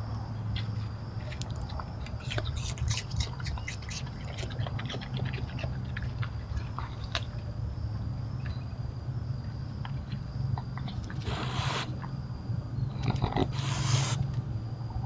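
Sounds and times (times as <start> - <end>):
raccoon crunching food: 0.5 - 8.6, 9.7 - 12.2, 12.9 - 14.1.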